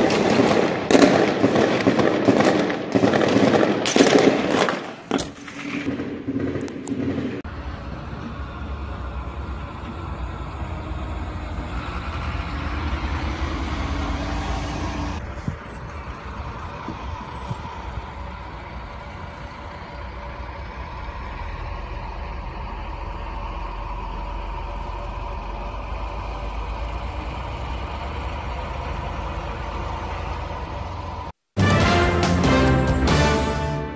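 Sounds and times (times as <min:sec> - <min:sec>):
sharp crack: 0:00.0 - 0:07.5
vehicle engine rumbling: 0:00.0 - 0:33.9.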